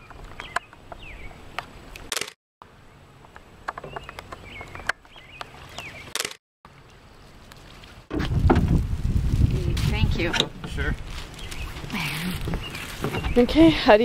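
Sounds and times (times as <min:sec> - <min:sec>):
birds chirping: 0:00.0 - 0:02.0, 0:02.7 - 0:06.3, 0:10.7 - 0:14.0.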